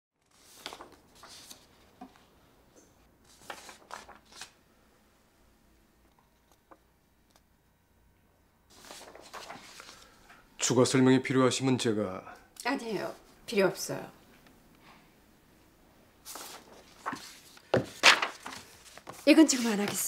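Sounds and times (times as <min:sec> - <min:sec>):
paper rustling: 0:00.2 - 0:02.3, 0:03.2 - 0:04.6, 0:08.7 - 0:10.2, 0:16.2 - 0:20.0.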